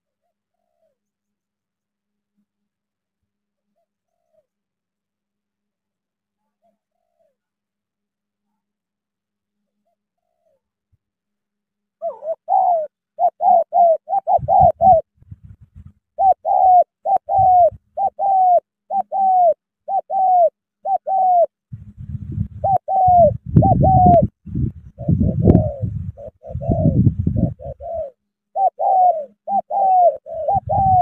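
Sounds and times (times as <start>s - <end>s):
dove cooing: 3.8s - 4.5s, 9.8s - 10.6s, 12.0s - 31.0s.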